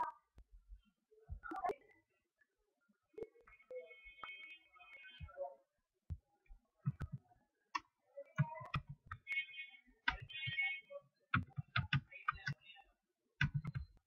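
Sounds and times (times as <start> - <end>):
computer mouse clicking: 10.1 - 10.3, 11.4 - 12.6, 13.4 - 14.0.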